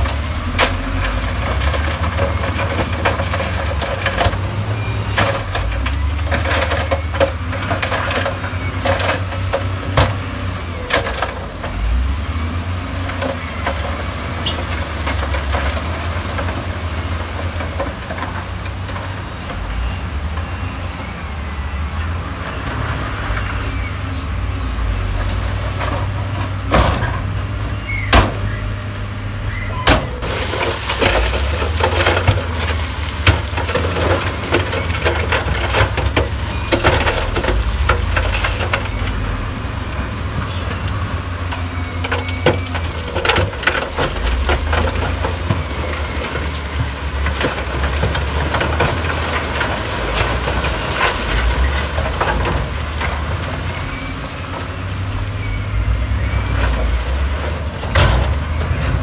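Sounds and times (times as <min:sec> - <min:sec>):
sharp knocks and clatter: 0:00.0 - 0:10.3, 0:25.2 - 0:27.4, 0:29.8 - 0:39.2, 0:40.3 - 0:53.5, 0:56.5 - 0:59.0
diesel machinery rumbling: 0:00.0 - 0:59.0.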